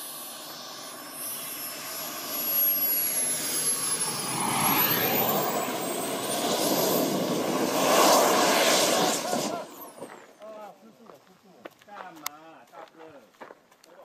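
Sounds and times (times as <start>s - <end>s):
model jet crash landing: 0.0s - 10.4s
model jet engine rushing: 0.0s - 10.4s.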